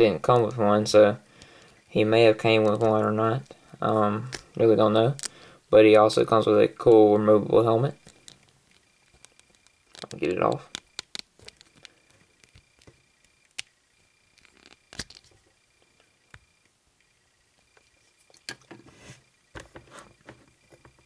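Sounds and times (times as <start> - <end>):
small plastic clicks: 8.0 - 13.7, 14.3 - 15.4
light plastic scraping: 18.5 - 21.0.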